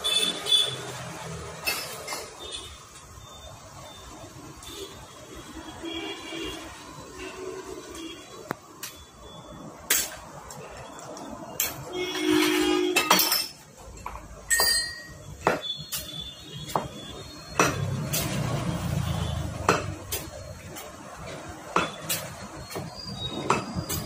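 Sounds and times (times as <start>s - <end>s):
metal fork tube clinking: 11.7s - 15.2s.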